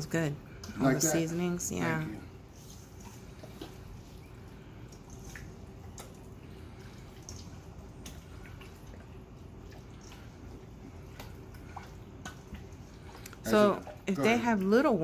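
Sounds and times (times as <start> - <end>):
faint steady hum: 0.0 - 15.0
wet squelches of chicken: 2.5 - 14.0.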